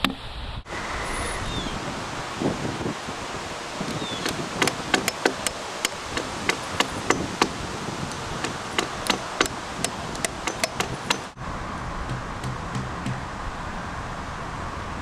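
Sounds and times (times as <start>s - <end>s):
hammer driving nails into wood: 4.2s - 11.4s.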